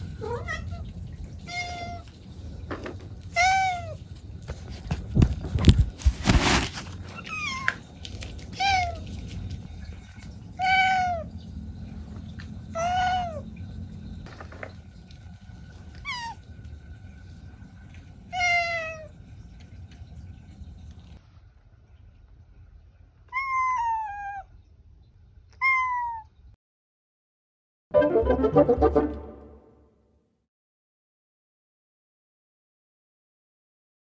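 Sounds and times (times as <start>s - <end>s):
cat meowing: 23.3s - 24.5s, 25.5s - 26.3s.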